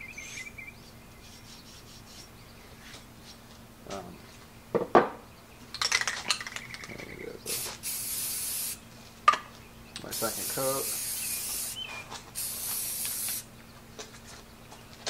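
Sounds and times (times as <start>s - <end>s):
spray paint can rattling: 5.8s - 8.8s, 10.1s - 11.8s, 12.4s - 13.4s.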